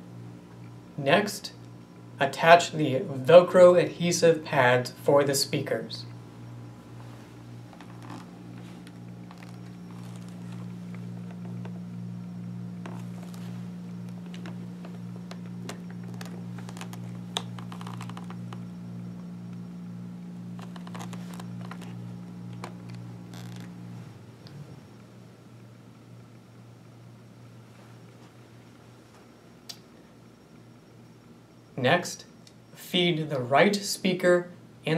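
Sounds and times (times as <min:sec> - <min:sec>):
low hum: 0:00.0 - 0:32.9
velcro pads rustling and clicking: 0:07.7 - 0:11.8, 0:12.8 - 0:13.5, 0:14.1 - 0:18.6, 0:20.6 - 0:23.8.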